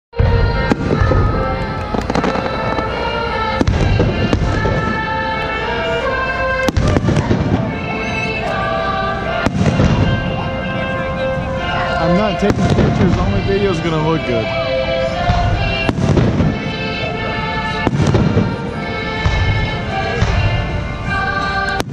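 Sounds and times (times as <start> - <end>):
music with long held notes: 0.2 - 21.9
firework shells bursting: 0.7 - 5.0.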